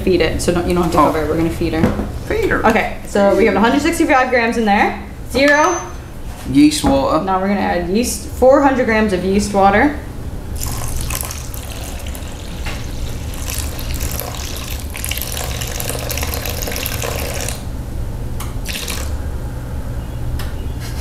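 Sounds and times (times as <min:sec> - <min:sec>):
water trickling into metal bowl: 0:10.6 - 0:17.6, 0:18.7 - 0:19.2.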